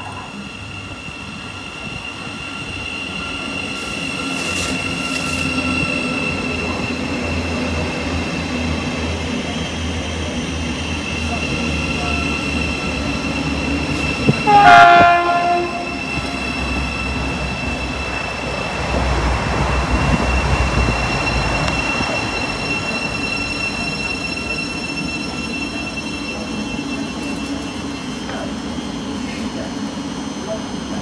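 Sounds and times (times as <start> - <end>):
passing train rumble: 0.0 - 31.0
train horn blast: 14.4 - 16.1.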